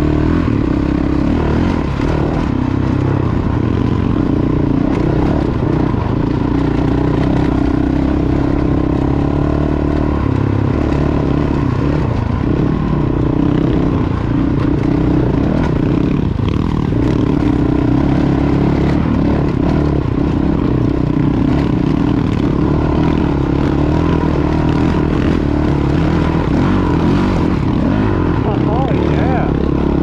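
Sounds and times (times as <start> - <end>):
motorcycle engine running: 0.0 - 30.0
clatter from rough ground: 0.1 - 30.0.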